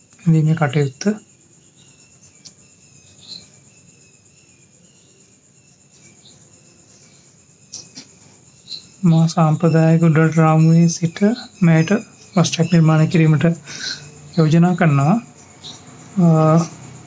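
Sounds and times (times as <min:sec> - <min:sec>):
crickets chirping: 0:00.0 - 0:17.0
faint ticks: 0:02.3 - 0:02.6.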